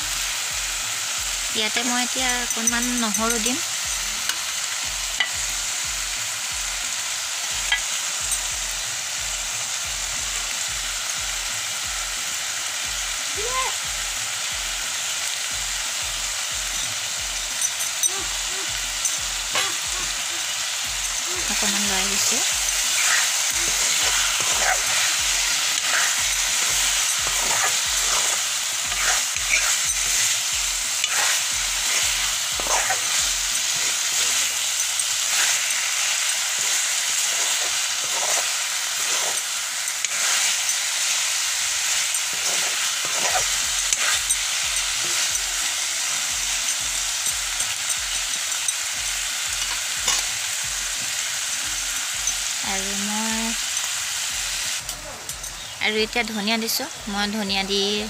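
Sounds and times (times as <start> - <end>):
food sizzling in iron pan: 0.0 - 58.0
spatula scraping pan: 21.0 - 40.8, 41.8 - 45.6.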